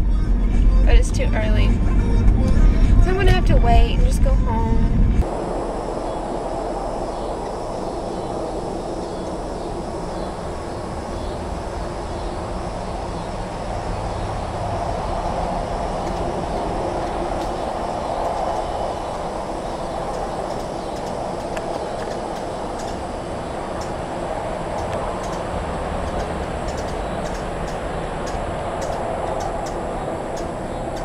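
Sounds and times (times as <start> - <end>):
steady rumbling noise: 0.0 - 31.0.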